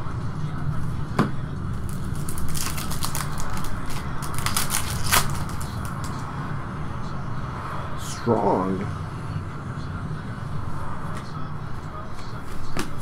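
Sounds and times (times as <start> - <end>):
trading cards clicking and rustling: 1.8 - 6.2.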